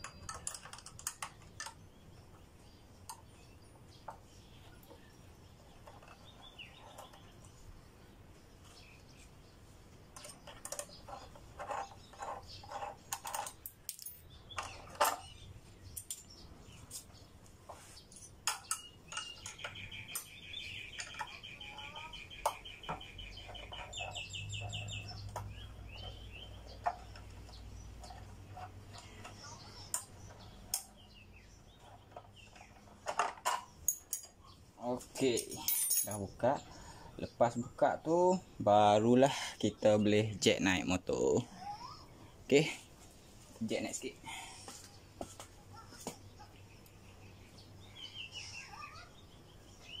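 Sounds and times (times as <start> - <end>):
bird chirping trill: 0.0 - 13.6, 14.2 - 32.9, 45.7 - 50.0
hand tools clinking on metal: 10.2 - 16.4, 32.6 - 34.4, 35.1 - 36.4.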